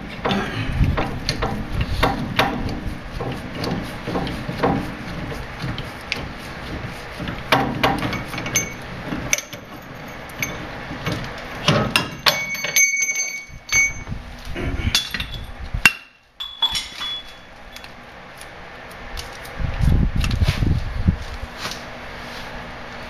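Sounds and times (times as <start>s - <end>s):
metal knocks and clinks: 7.6s - 14.1s, 14.9s - 15.6s, 16.4s - 17.9s.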